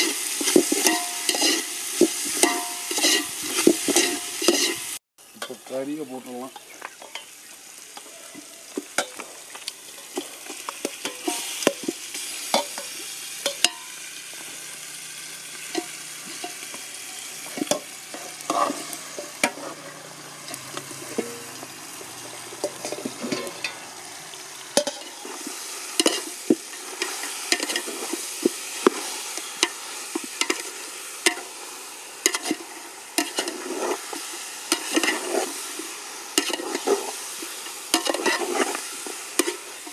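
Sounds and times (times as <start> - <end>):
oil and spices sizzling in a pot: 0.0 - 39.9
metal spoon clanking on steel: 0.5 - 1.6.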